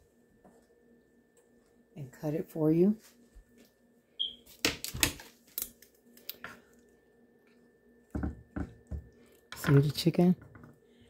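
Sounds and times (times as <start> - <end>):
utensils knocking on cutting board: 8.1 - 9.0.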